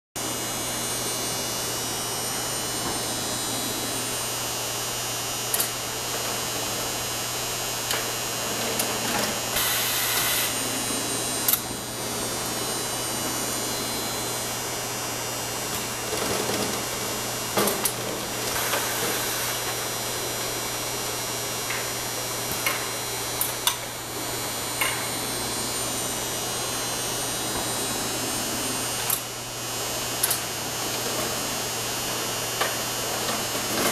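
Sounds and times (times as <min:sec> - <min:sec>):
machinery hum: 0:00.2 - 0:33.9
mechanical hiss: 0:09.5 - 0:10.6.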